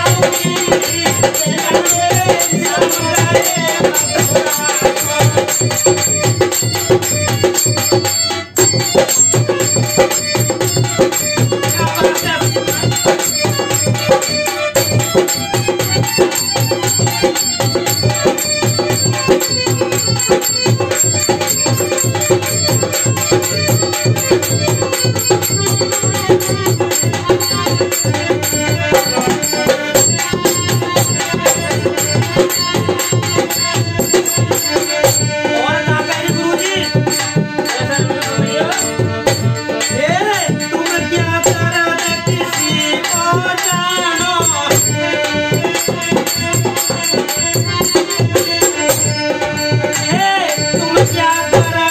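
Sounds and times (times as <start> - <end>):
hand drum fast rhythm: 0.0 - 51.9
harmonium chords: 0.0 - 51.9.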